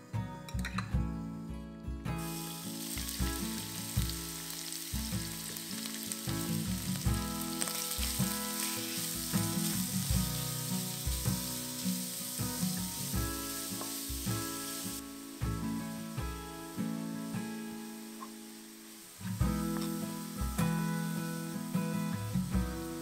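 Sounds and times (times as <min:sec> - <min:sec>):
soft background music: 0:00.0 - 0:23.0
shrimp sizzling in hot oil: 0:02.2 - 0:23.0
wooden spoon stirring in wok: 0:02.3 - 0:15.0.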